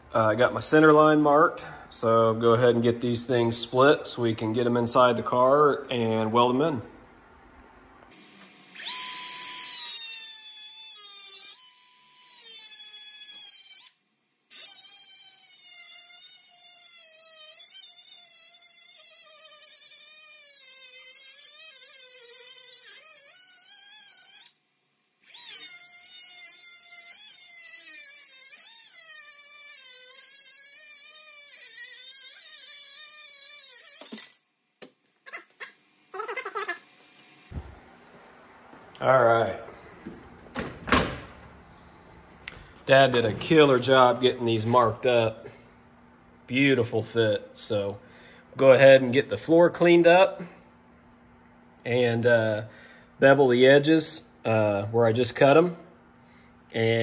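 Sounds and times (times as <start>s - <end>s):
power tool cutting steel: 8.7s - 24.6s, 25.2s - 34.4s.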